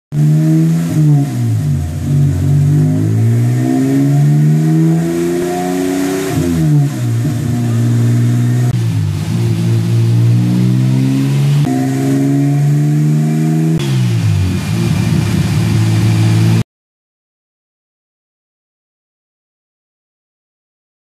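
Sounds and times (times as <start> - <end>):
turbocharged car engine revving: 0.1 - 16.6.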